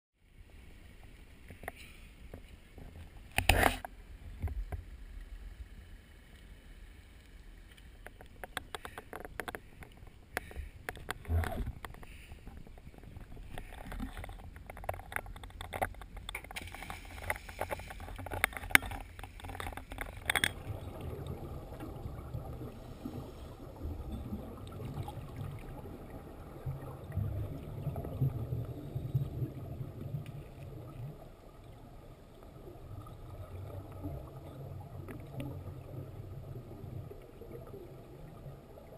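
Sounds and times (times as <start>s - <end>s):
scuba gear clattering: 8.0s - 20.7s
muffled underwater rumble: 9.6s - 38.9s.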